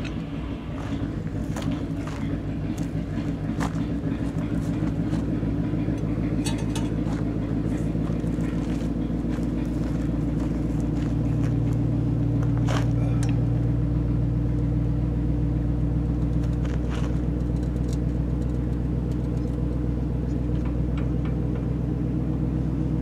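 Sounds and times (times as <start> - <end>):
truck engine idling: 0.0 - 23.0.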